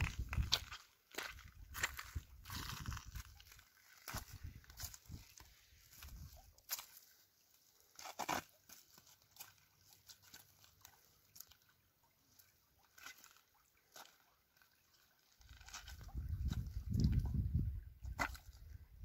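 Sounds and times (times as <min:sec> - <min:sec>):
footsteps on pebbles: 0:00.0 - 0:07.2, 0:15.4 - 0:17.3.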